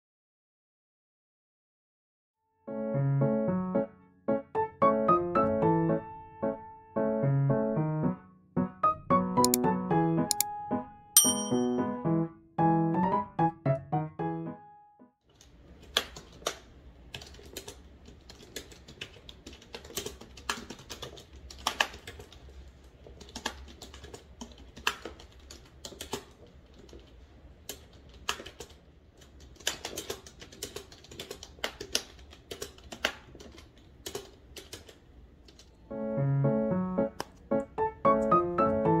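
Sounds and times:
keyboard typing clicks: 9.4 - 9.6, 10.3 - 10.5, 23.1 - 35.8.

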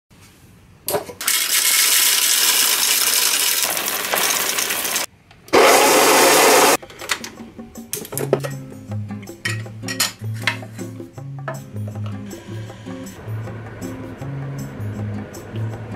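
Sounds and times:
coffee beans rattling into hopper: 1.2 - 5.1.

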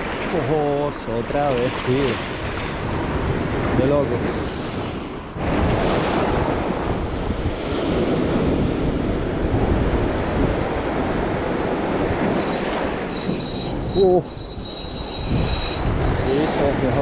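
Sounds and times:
wind buffeting microphone: 2.2 - 17.0.

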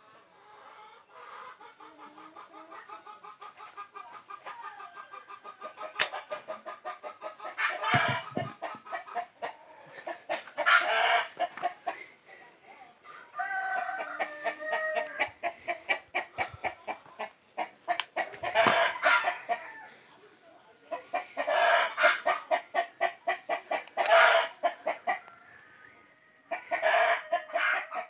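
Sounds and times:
chickens cackling: 0.0 - 28.0
chickens clucking: 0.0 - 28.0.

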